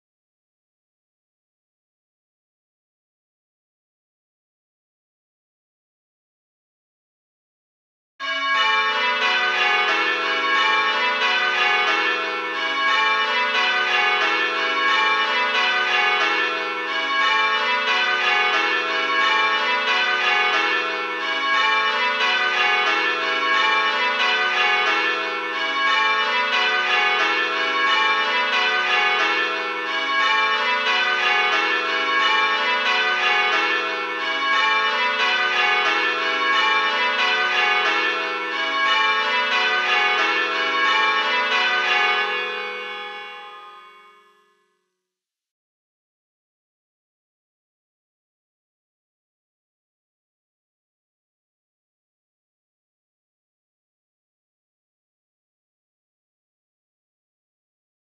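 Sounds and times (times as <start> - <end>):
church bells ringing: 8.2 - 44.5.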